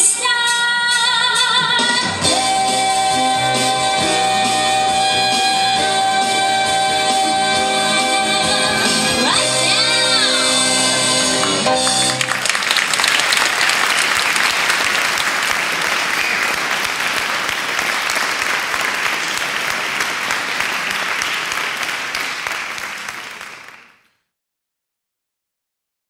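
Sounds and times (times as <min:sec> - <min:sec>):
audience applauding: 0:11.3 - 0:24.1.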